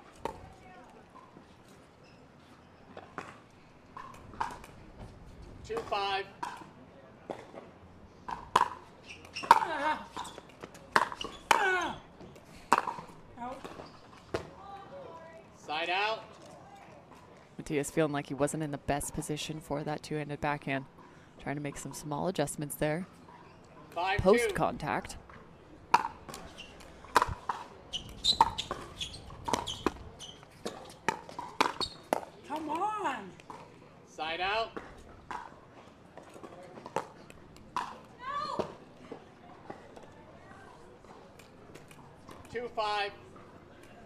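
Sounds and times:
shoe squeaks: 1.9s - 3.0s, 9.0s - 12.1s, 13.6s - 14.3s, 26.4s - 27.0s, 27.8s - 32.1s.

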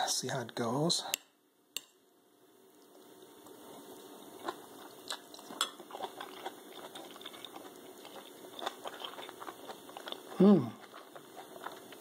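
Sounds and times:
person chewing food: 2.9s - 12.0s.

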